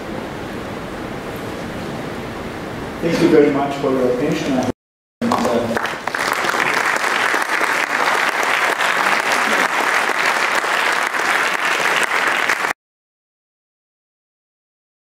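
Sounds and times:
audience applauding: 5.2s - 12.8s.

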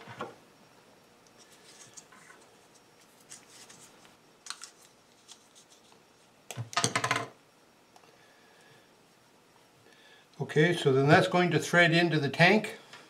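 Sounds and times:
tape rustling: 1.4s - 6.0s.

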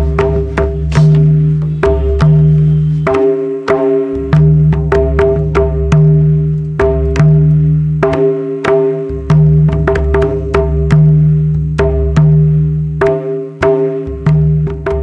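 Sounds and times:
deep booming bass drum strokes: 0.0s - 3.2s
hand drums played in rhythm: 0.0s - 15.0s
sharp drum slaps: 0.0s - 15.0s.

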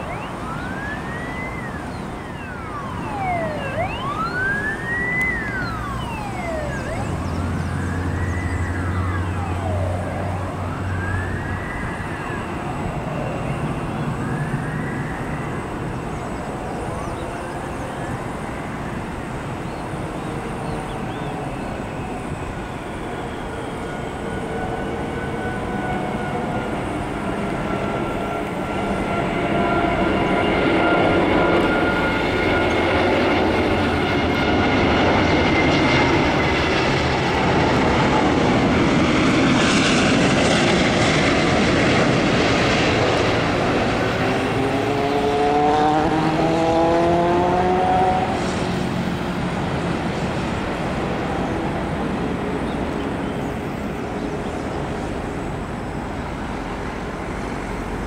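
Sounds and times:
jet engine roar: 0.0s - 58.0s
rising whines: 0.0s - 58.0s.

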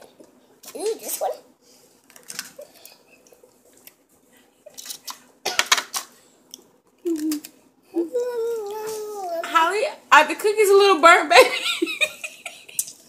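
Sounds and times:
aluminium foil crinkling: 2.0s - 3.0s, 4.7s - 5.2s
child humming: 7.0s - 9.4s.

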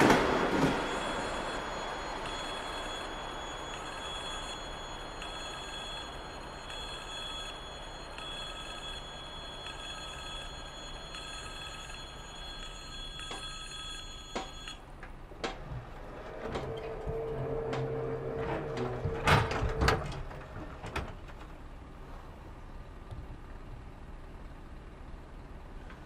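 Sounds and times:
level crossing warning bell: 0.0s - 15.2s.

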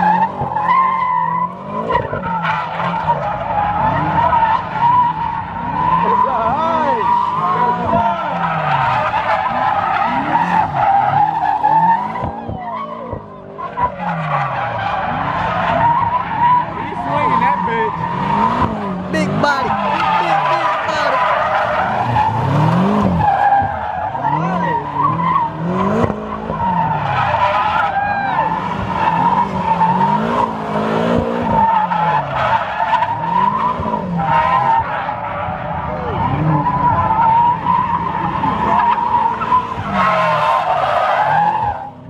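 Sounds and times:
car engine revving: 0.0s - 42.0s
tyres squealing: 0.0s - 42.0s.

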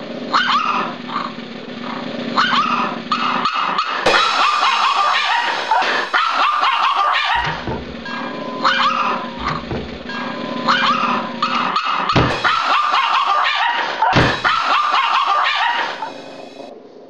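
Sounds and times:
small dog barking and yipping: 0.3s - 16.3s
low thumps: 5.5s - 8.3s, 9.2s - 10.3s, 12.2s - 12.6s.

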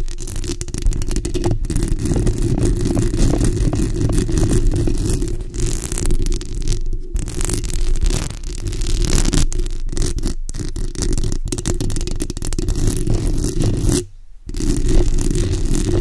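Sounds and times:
nails scratching microphone grille: 0.0s - 16.0s.

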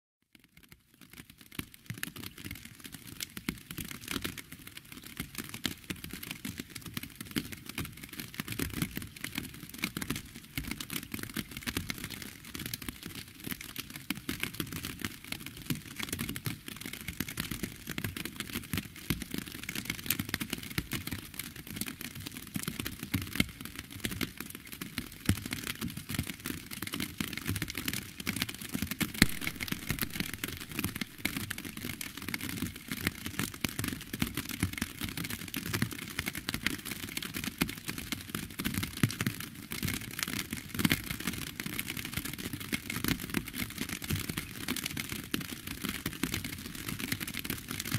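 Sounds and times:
steady rain falling: 28.4s - 37.7s.

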